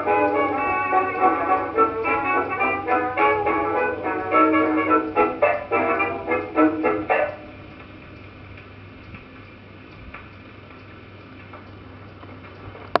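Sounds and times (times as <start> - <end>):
dance band record playing: 0.0 - 7.6
faint record ticks: 0.0 - 13.0
record surface hiss: 0.0 - 13.0.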